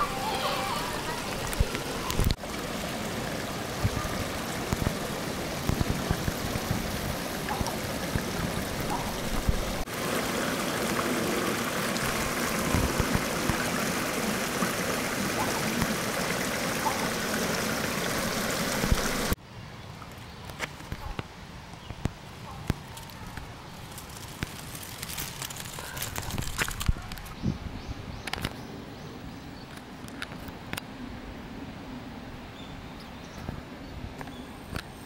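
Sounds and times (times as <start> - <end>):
running water: 0.0 - 19.4.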